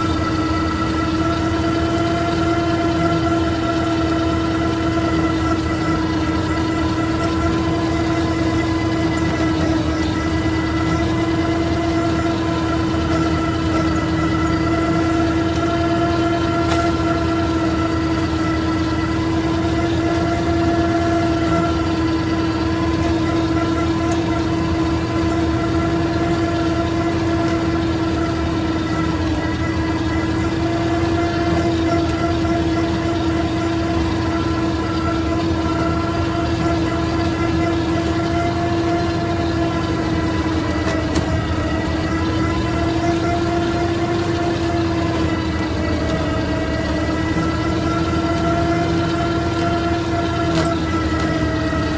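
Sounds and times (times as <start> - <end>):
flail mulcher whine: 0.0 - 51.9
tractor engine rumble: 0.0 - 51.9.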